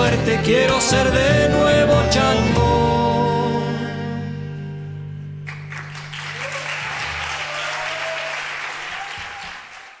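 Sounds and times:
audience applauding: 0:05.5 - 0:10.0
audience cheers: 0:05.6 - 0:10.0.

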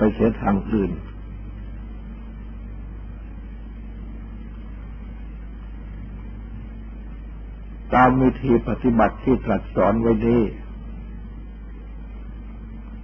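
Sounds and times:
constant hiss: 0:00.0 - 0:13.0
low hum: 0:00.0 - 0:13.0.

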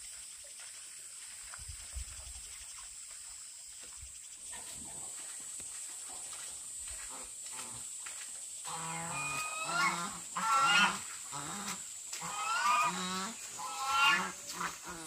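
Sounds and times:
farm animal calling: 0:08.7 - 0:15.0.

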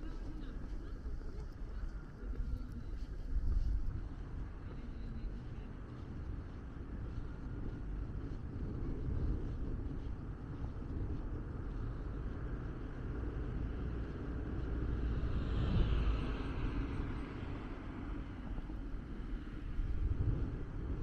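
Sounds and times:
wind buffeting microphone: 0:00.0 - 0:21.0
car passing: 0:11.8 - 0:21.0.

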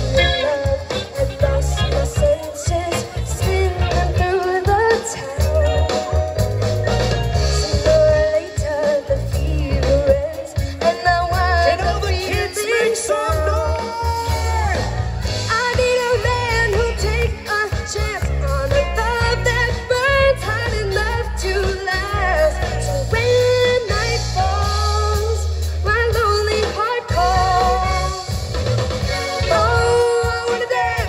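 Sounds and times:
bass line: 0:00.0 - 0:31.0
drums: 0:00.0 - 0:31.0
electric guitar: 0:00.0 - 0:31.0
woman singing lead: 0:00.0 - 0:31.0.

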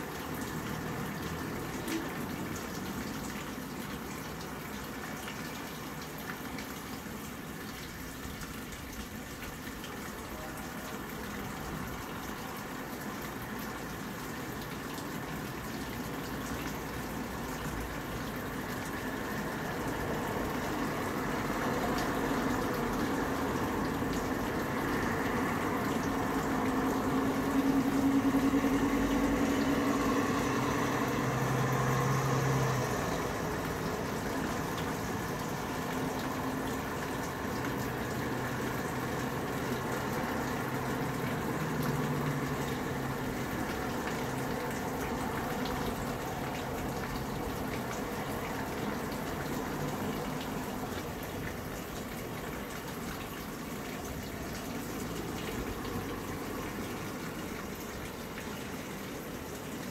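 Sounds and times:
passing vehicle engines hum: 0:00.0 - 0:07.2, 0:10.6 - 0:59.9
tap water running: 0:13.0 - 0:59.9.

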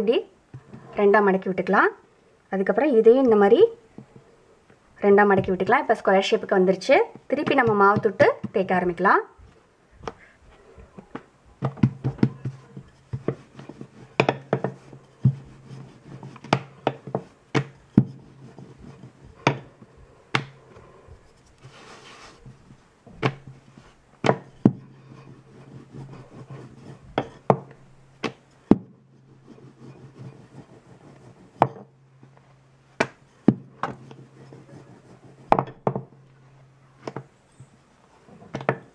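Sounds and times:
rolling pin knocking on countertop: 0:07.4 - 0:08.6, 0:11.6 - 0:15.6, 0:16.2 - 0:19.7, 0:24.2 - 0:24.8, 0:31.5 - 0:31.9, 0:35.5 - 0:36.1
hands rubbing floured dough: 0:10.0 - 0:32.3, 0:33.8 - 0:35.6.

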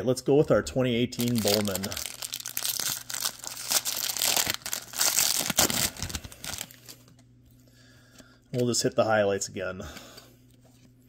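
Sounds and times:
foil wrapper tearing and crinkling: 0:01.2 - 0:07.0.

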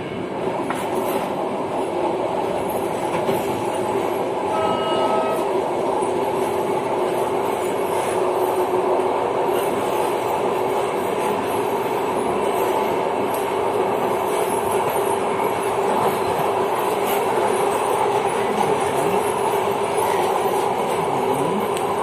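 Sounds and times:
train wheels rolling on rail: 0:00.0 - 0:22.0
short high tone: 0:04.5 - 0:05.4.

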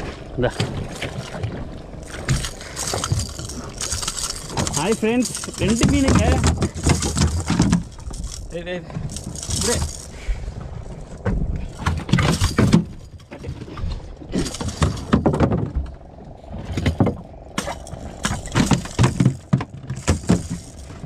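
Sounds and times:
knocks and thuds on boat deck: 0:05.6 - 0:08.2, 0:10.5 - 0:14.0, 0:14.6 - 0:16.0, 0:18.3 - 0:21.0.

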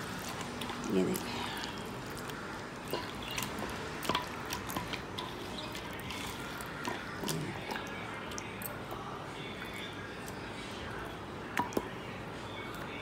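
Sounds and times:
hand squelching marinade: 0:00.0 - 0:08.8.

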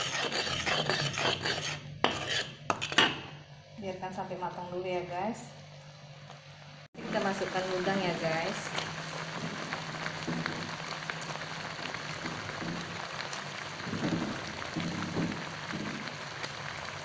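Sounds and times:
metal spatula stirring: 0:00.0 - 0:03.1
shrimp sizzling in a wok: 0:07.0 - 0:17.0.

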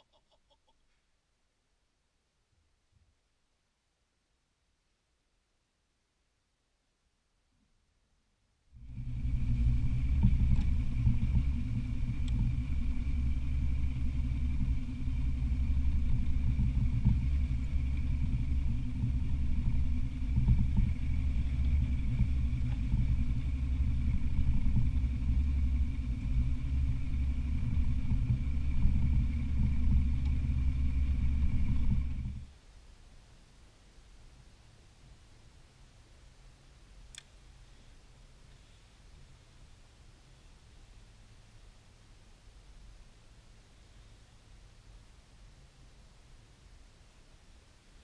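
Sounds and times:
boat motor running: 0:08.8 - 0:32.5.

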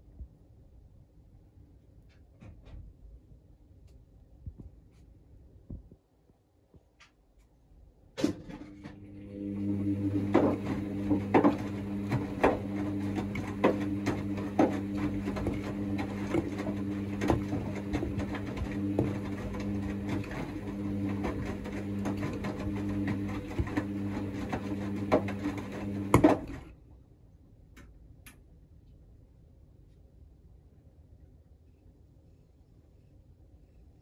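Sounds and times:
washing machine motor hum: 0:08.2 - 0:26.8
laundry knocking in drum: 0:10.2 - 0:26.6.

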